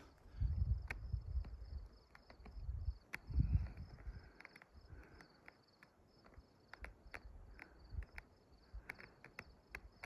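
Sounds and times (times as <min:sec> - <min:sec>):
soft clicks: 0:00.8 - 0:10.0.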